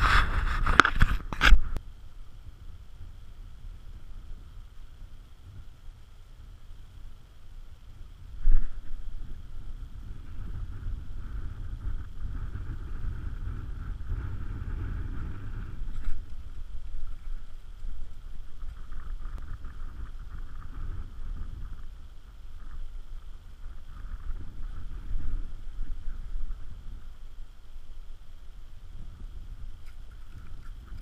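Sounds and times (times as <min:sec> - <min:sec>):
wind buffeting microphone: 0:07.8 - 0:31.0.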